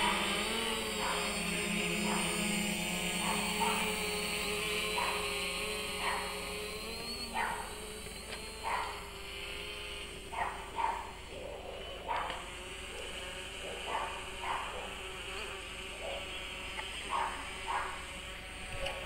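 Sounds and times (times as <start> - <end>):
drone propeller hum: 0.0 - 19.0
dog barking: 3.2 - 3.9, 5.0 - 5.2, 6.0 - 6.3, 7.4 - 7.7, 8.6 - 9.0, 10.3 - 15.0, 17.1 - 18.0.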